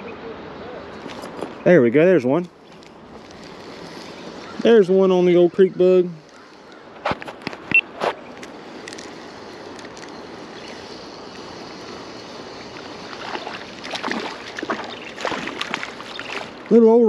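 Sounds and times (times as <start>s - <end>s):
river flowing: 0.0s - 17.0s.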